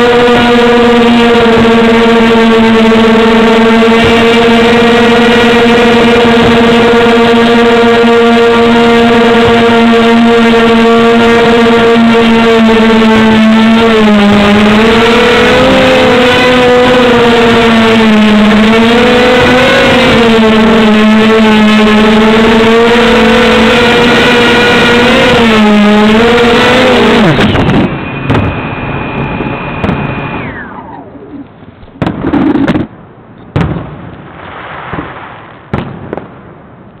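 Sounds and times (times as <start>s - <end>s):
quadcopter motors whining: 0.0s - 32.8s.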